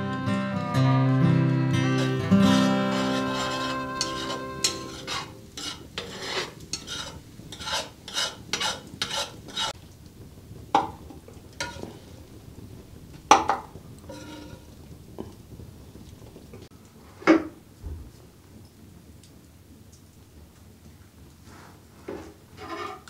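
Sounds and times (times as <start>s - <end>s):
metal spoon scraping skillet: 1.8s - 9.8s, 11.6s - 12.1s, 13.4s - 14.8s, 22.0s - 23.0s
utensil clinking: 2.0s - 5.6s.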